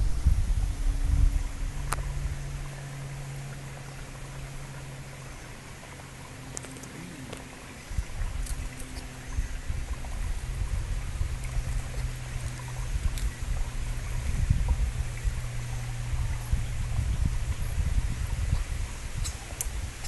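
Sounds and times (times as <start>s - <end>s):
wind buffeting microphone: 0.0s - 4.1s, 6.9s - 20.0s
faint steady hum: 0.0s - 20.0s.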